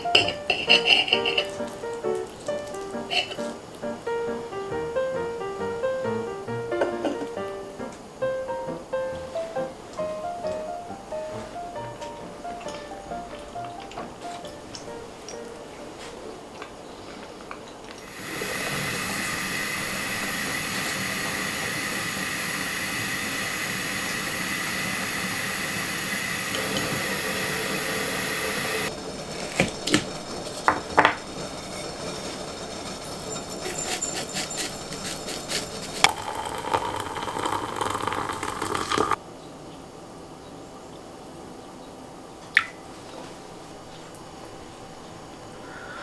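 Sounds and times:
steady hiss: 0:00.0 - 0:39.2
water pouring into ceramic mug: 0:18.0 - 0:28.9, 0:36.0 - 0:39.2.

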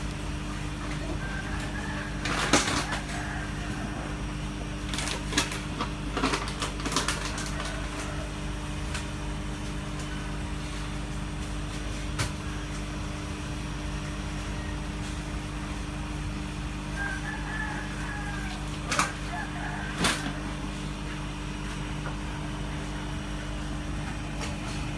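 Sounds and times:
steady mechanical hum: 0:00.0 - 0:24.9.

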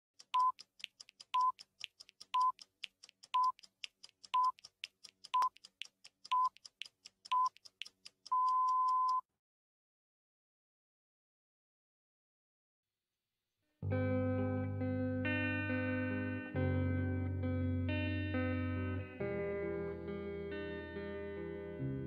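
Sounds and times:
clicks and crackle: 0:00.2 - 0:09.2
short steady beeps: 0:01.4 - 0:01.6, 0:02.4 - 0:02.6, 0:03.4 - 0:03.6, 0:04.4 - 0:04.6, 0:08.3 - 0:09.2.

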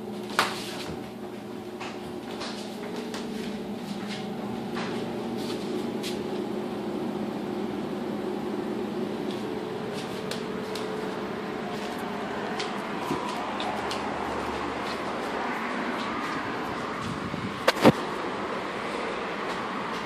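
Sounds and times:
steady mechanical hum: 0:00.0 - 0:20.0.

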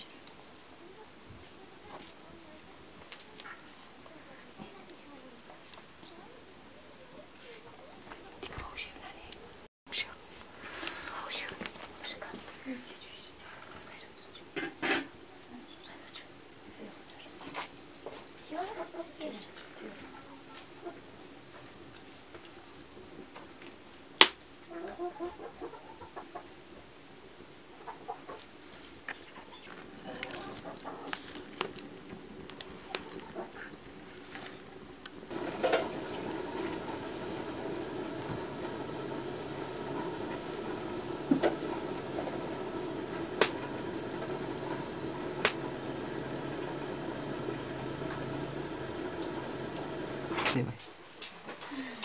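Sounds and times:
steady hiss: 0:08.8 - 0:14.4, 0:35.1 - 0:50.7
burning wood popping: 0:31.1 - 0:50.6.

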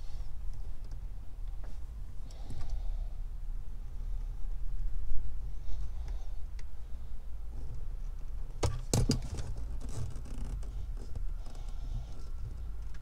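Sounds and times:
steady low rumble: 0:00.0 - 0:13.0
plastic hoses rubbing and scraping: 0:07.5 - 0:13.0.

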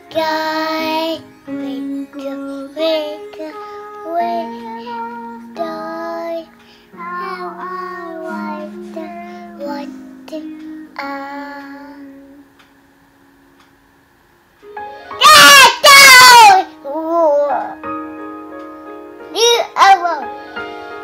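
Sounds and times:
toddler singing: 0:00.0 - 0:12.4
backing music: 0:14.6 - 0:15.2, 0:20.1 - 0:21.0.

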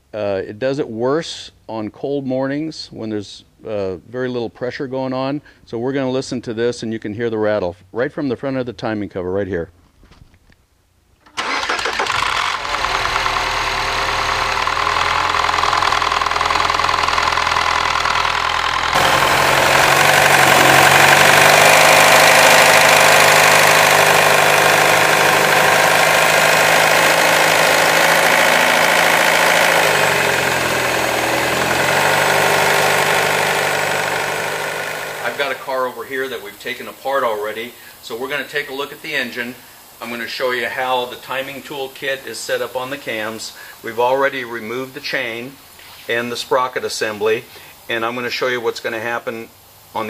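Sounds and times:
car engine starting: 0:11.3 - 0:36.0
car engine idling: 0:11.4 - 0:36.0.

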